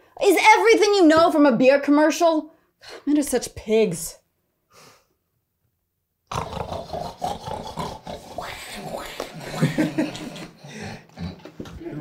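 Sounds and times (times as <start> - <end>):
loud animal growling and roaring: 6.3 - 11.4.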